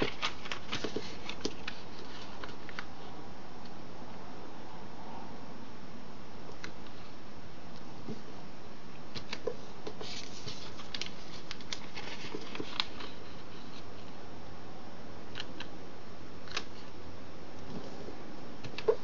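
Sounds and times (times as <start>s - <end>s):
paper rustling and creasing: 0.0s - 3.1s, 9.2s - 14.2s.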